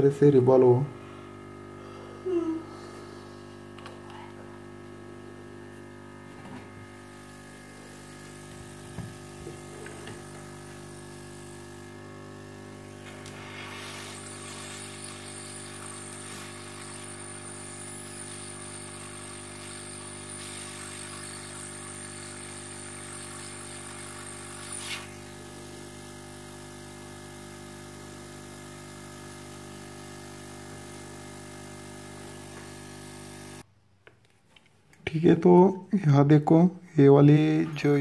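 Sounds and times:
air hiss: 0:12.8 - 0:25.4.

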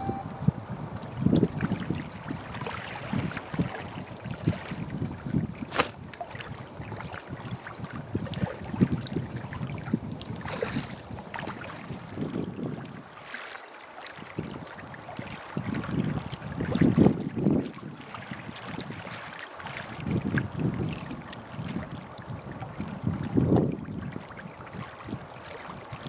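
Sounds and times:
wind buffeting microphone: 0:00.2 - 0:13.1, 0:14.2 - 0:19.2, 0:19.8 - 0:26.0
small waves lapping shore: 0:01.1 - 0:26.0
catapult snap: 0:05.7 - 0:06.0.

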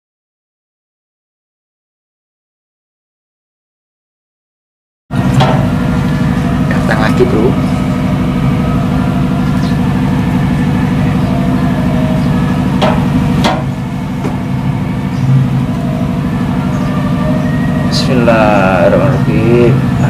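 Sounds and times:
engine humming: 0:05.1 - 0:20.0.

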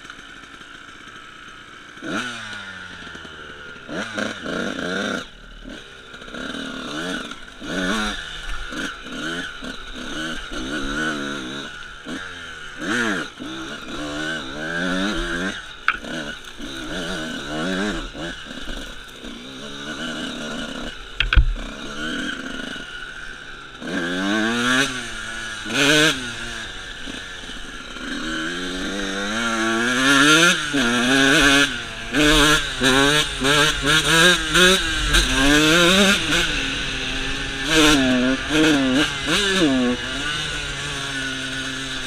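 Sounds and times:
dirt bike engine revving: 0:00.0 - 0:42.0
sharp knock: 0:21.2 - 0:21.6.

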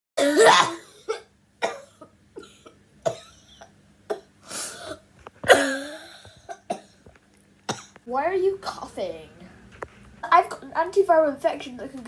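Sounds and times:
boy coughing: 0:00.2 - 0:07.0.

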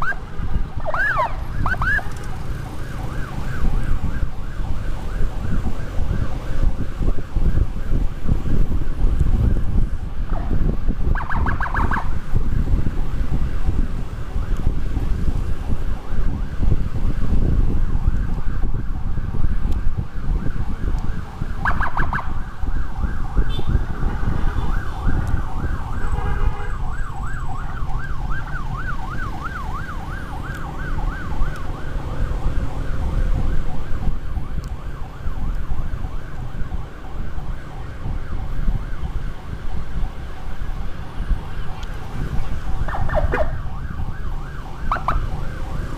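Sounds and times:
wind rumble on microphone: 0:00.0 - 0:45.9
electronic siren warbling: 0:00.8 - 0:04.0, 0:11.1 - 0:12.1, 0:42.7 - 0:45.9.

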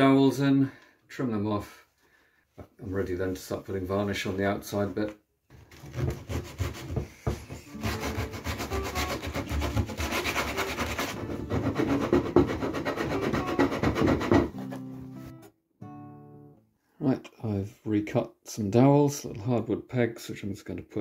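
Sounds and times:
hand sanding wood: 0:05.8 - 0:14.8.

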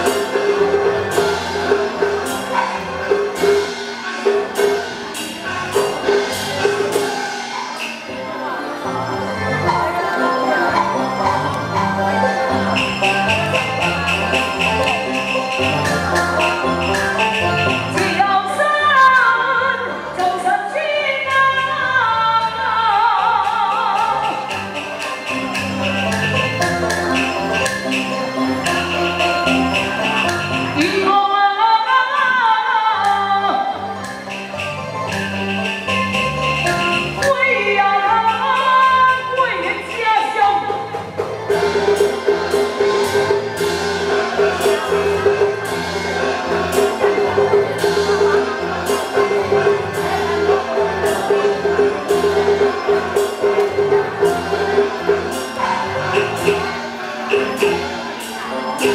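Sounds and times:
percussion strokes: 0:00.0 - 0:19.3, 0:22.4 - 0:31.2, 0:33.0 - 0:58.9
live band playing: 0:00.0 - 0:58.9
repeating pulsing melody note: 0:08.9 - 0:18.2.

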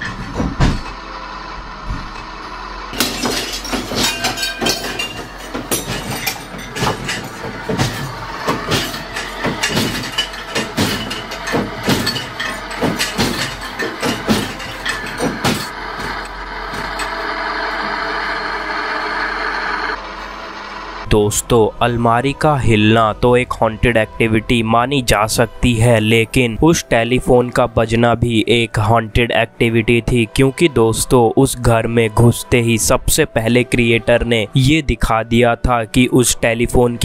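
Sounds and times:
wooden wardrobe rattling: 0:03.0 - 0:17.1.

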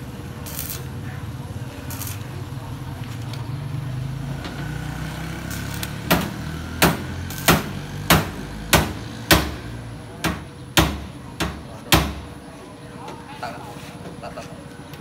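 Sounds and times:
arc welder buzzing: 0:00.0 - 0:03.4, 0:04.0 - 0:09.9
hammer striking steel: 0:05.6 - 0:09.6.

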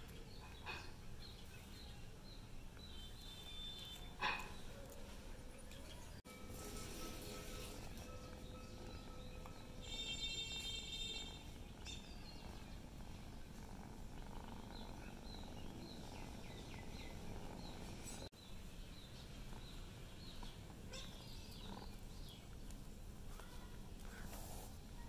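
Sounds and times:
small birds chirping faintly: 0:00.0 - 0:25.0
cat purring: 0:07.0 - 0:18.3, 0:19.0 - 0:25.0.

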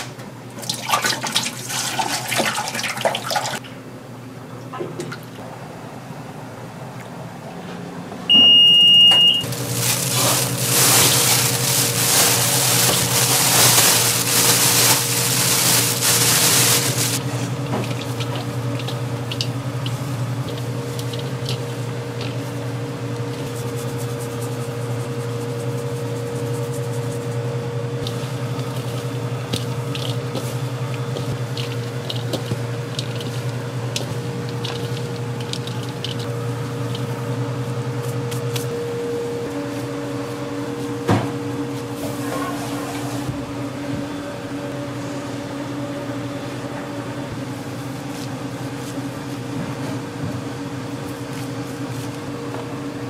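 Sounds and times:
low machine hum: 0:00.0 - 0:53.0
short electronic beep: 0:08.3 - 0:09.5.

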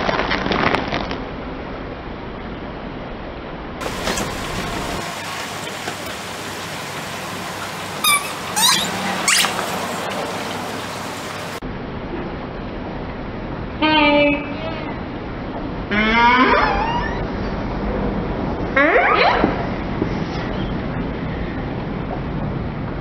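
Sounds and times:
steady hiss: 0:03.8 - 0:11.6
rubber ducks squeaking: 0:08.0 - 0:09.8.

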